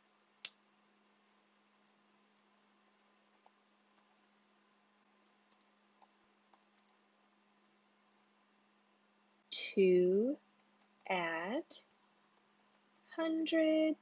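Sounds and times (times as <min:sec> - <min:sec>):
low steady hum: 0:00.0 - 0:14.0
computer keyboard keystrokes: 0:03.3 - 0:04.2, 0:06.5 - 0:07.0, 0:11.9 - 0:13.7.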